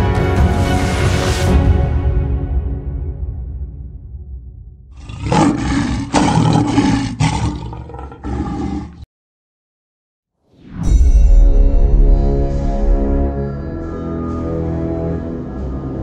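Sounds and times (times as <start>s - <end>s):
lion roaring: 5.0s - 9.1s.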